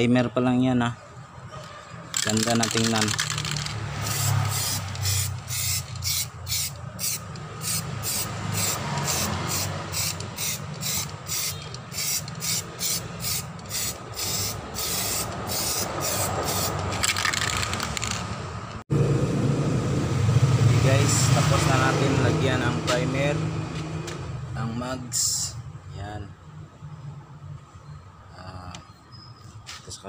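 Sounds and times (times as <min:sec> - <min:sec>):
spray can hissing bursts: 0:04.0 - 0:17.0.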